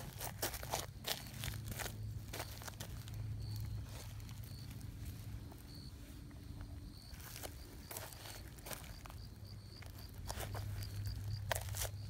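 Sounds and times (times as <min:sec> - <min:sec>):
footsteps crunching on dry leaves: 0:00.0 - 0:06.3, 0:07.0 - 0:12.0.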